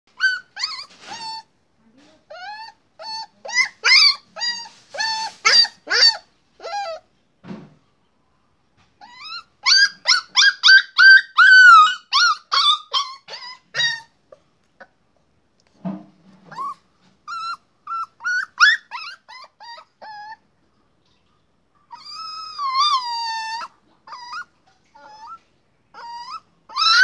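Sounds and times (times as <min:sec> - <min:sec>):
puppy yipping and whining: 0:00.1 - 0:01.5, 0:02.3 - 0:07.1, 0:09.0 - 0:14.2, 0:16.4 - 0:20.5, 0:21.8 - 0:27.0.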